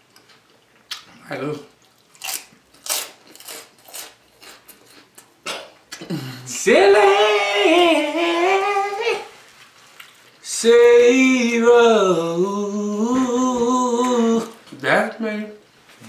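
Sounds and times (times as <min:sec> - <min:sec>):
crunchy chewing: 0:00.1 - 0:05.4
high voice singing: 0:06.1 - 0:09.4, 0:10.4 - 0:14.7.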